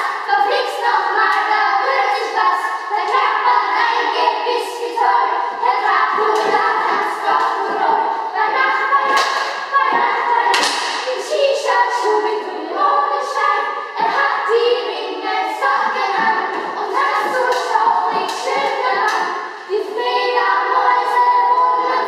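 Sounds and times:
children singing: 0.0 - 22.0
sharp slaps or thumps: 9.1 - 11.2.

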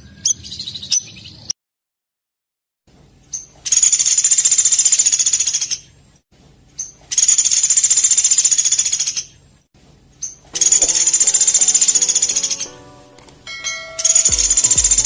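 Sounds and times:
songbird high trill: 10.6 - 15.0.

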